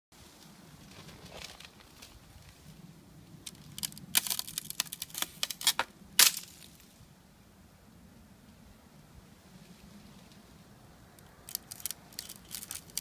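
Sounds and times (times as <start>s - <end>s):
ice crunching and crackling: 3.4s - 6.9s, 11.4s - 13.0s.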